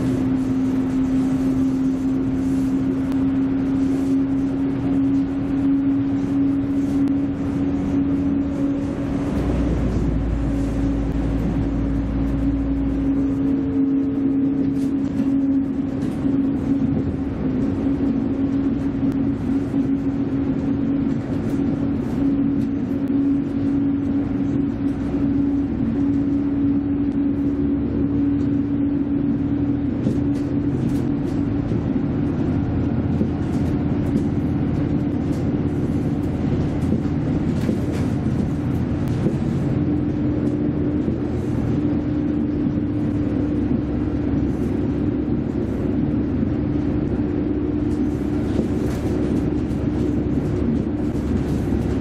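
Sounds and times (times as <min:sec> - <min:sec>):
droning tone: 0:00.0 - 0:52.0
railcar engine and wheels rumbling: 0:00.0 - 0:52.0.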